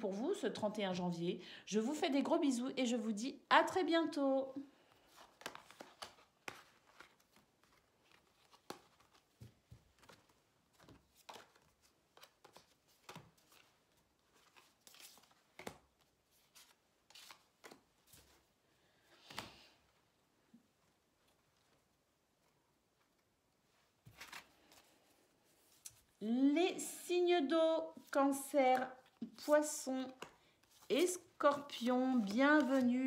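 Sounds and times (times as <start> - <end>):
cards rustling and tapping: 4.9 - 18.5, 24.0 - 25.0, 28.0 - 33.0.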